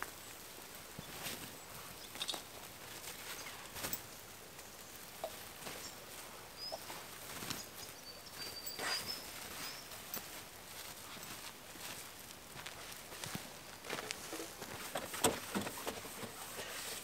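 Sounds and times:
flowing river hiss: 0.0s - 12.4s, 13.0s - 17.0s
canvas mat rustling and flapping: 0.0s - 17.0s
footsteps on dirt: 1.0s - 17.0s
thin bird whistle: 8.0s - 9.8s
scrapes: 8.4s - 10.2s, 13.9s - 17.0s.

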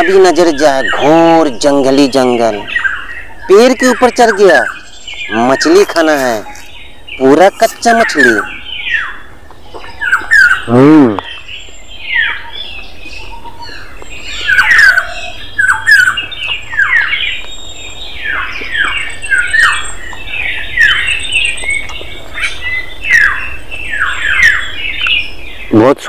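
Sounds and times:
birds squawking: 0.0s - 26.0s.

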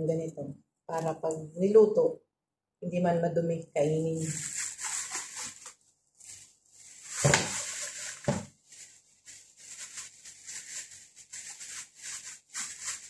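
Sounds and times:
plastic bags rustling: 4.1s - 13.0s.

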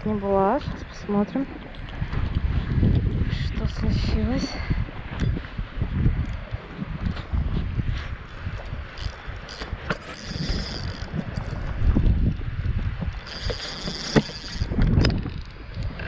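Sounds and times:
wind buffeting microphone: 0.0s - 16.0s
fishing reel clicking: 6.2s - 6.5s, 8.3s - 11.6s, 12.2s - 16.0s.

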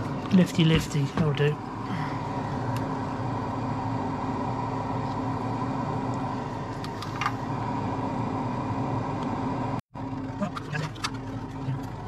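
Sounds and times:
extractor fan humming: 0.0s - 12.0s.

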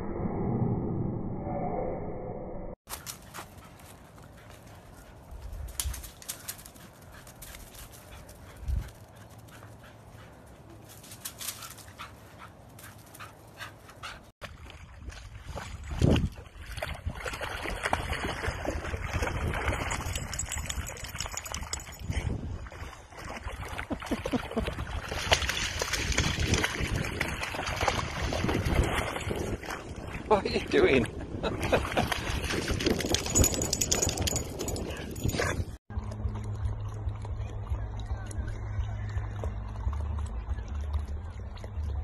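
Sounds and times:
dog splashing through water: 14.4s - 21.9s, 22.6s - 30.3s.

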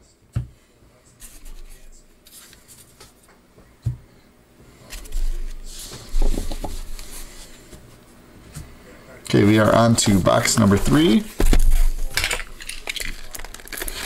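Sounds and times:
cards rustling and sliding: 1.2s - 3.2s, 9.6s - 14.0s.

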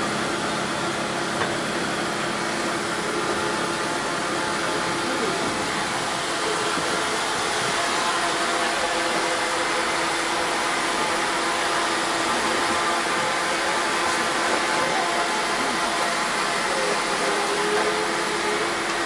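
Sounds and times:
diesel railcar engine hum: 0.0s - 19.0s.

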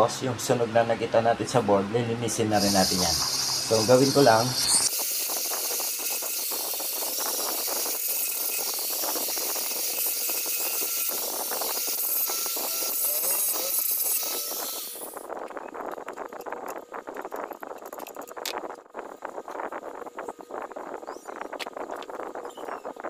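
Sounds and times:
angle grinder grinding circuit board: 2.4s - 18.8s.

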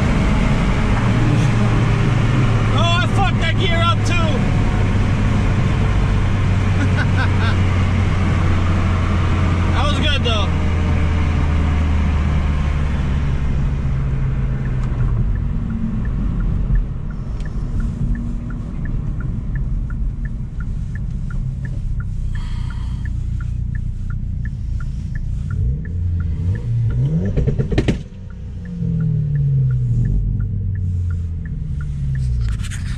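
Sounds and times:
engine revving: 0.0s - 18.3s, 24.6s - 32.9s
car engine idling: 0.0s - 32.9s
turn signal clicking: 12.2s - 32.9s.

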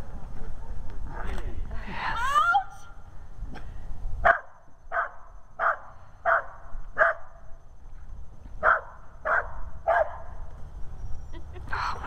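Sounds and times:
dog barking: 4.2s - 7.3s, 8.6s - 10.3s.

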